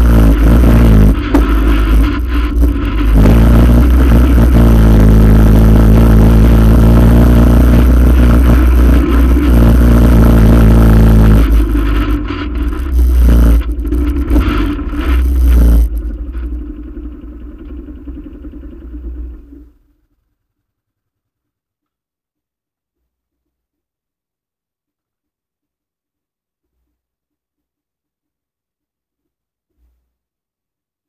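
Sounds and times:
quad bike engine running: 0.0s - 19.8s.

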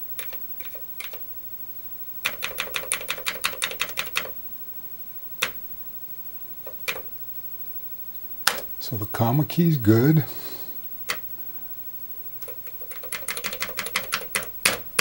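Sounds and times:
keyboard keys clicking: 0.2s - 1.2s, 2.2s - 4.4s, 6.7s - 7.1s, 12.4s - 15.0s.

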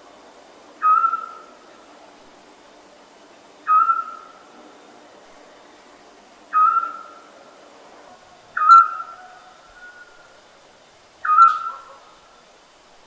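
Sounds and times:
owl calling: 0.8s - 1.6s, 3.6s - 4.5s, 6.5s - 7.3s, 8.5s - 10.4s, 11.2s - 12.4s.

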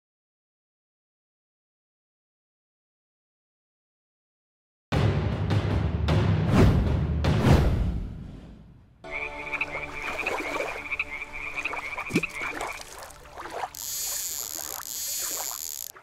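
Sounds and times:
frogs croaking: 9.1s - 16.0s.

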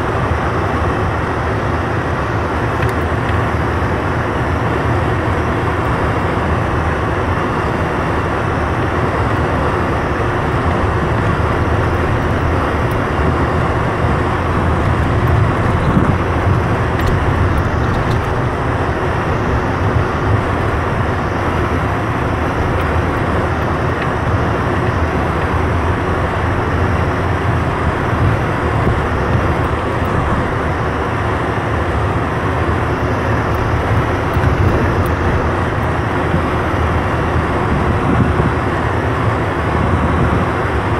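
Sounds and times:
engine and tyre rumble: 0.0s - 40.9s.

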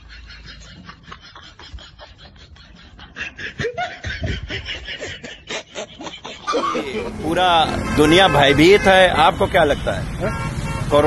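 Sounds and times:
person snickering and giggling: 0.0s - 7.1s.

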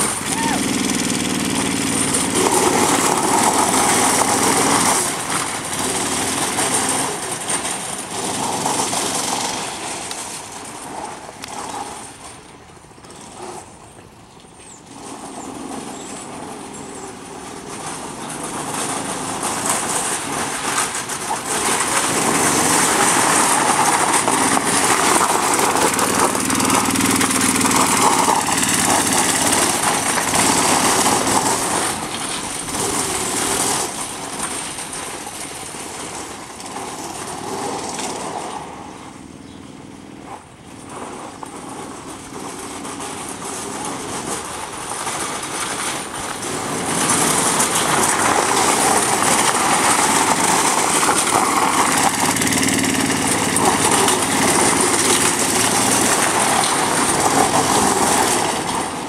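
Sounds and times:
go-kart engine running hard: 0.0s - 59.0s
tyres skidding on gravel: 0.0s - 59.0s.

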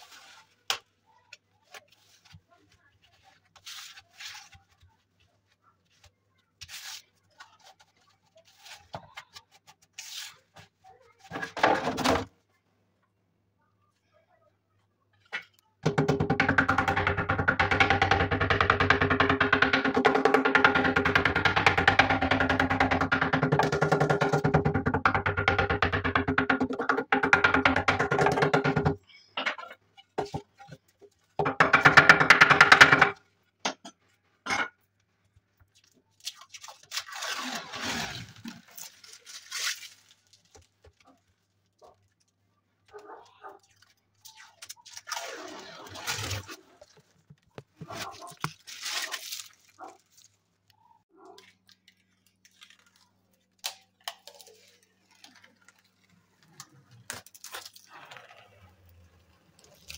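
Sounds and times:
rustling: 0.0s - 11.3s, 35.1s - 53.5s.

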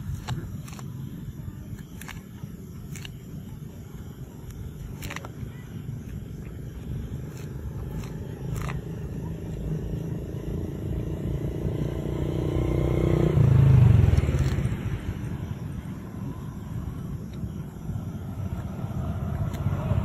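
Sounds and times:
passing vehicle engine rumble: 6.7s - 20.0s.

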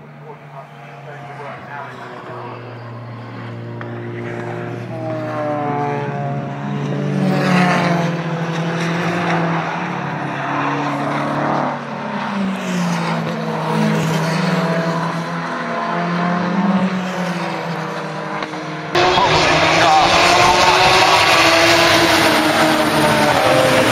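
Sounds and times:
racing car engines: 0.0s - 23.9s.

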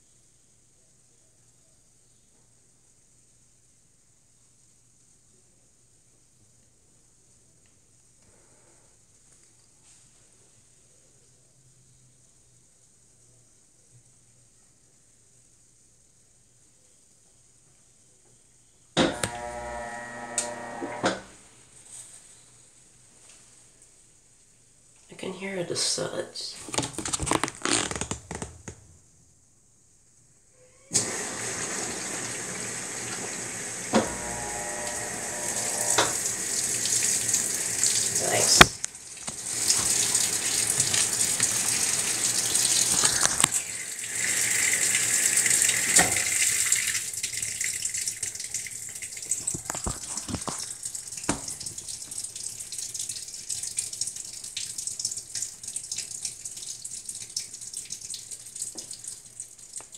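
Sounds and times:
water sloshing in washer tub: 36.8s - 43.8s.

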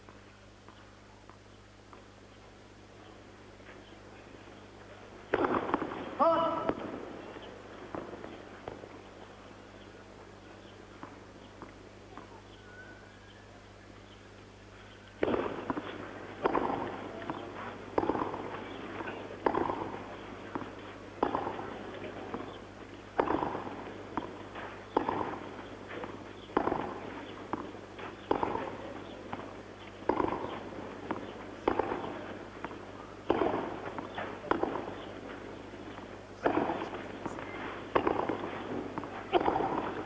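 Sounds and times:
racket hitting tennis ball: 5.3s - 6.9s, 15.2s - 40.0s
ball bouncing on clay: 15.2s - 35.3s, 35.9s - 40.0s.

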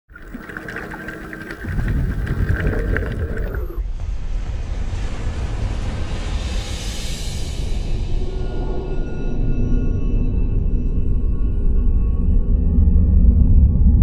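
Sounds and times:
faint hum: 0.1s - 3.8s.

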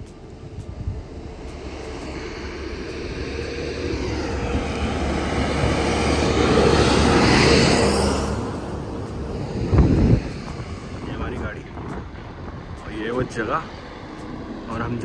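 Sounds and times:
dump truck driving past: 1.2s - 10.8s.

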